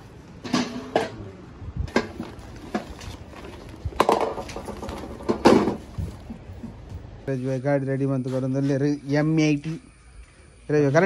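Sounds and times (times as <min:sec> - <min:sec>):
plastic kitchenware clattering: 0:01.9 - 0:06.4
plastic sack rustling: 0:01.9 - 0:07.3.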